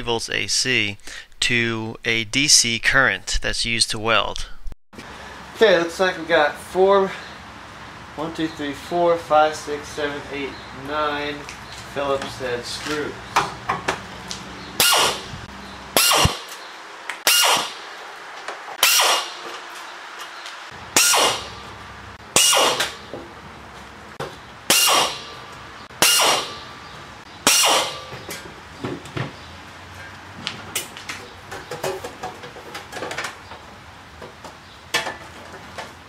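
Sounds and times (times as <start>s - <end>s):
pneumatic air drill bursts: 14.8s - 15.3s, 16.0s - 16.5s, 17.2s - 17.8s, 18.8s - 19.4s, 21.0s - 21.6s, 22.4s - 23.0s, 24.7s - 25.3s, 26.0s - 26.6s, 27.4s - 28.1s.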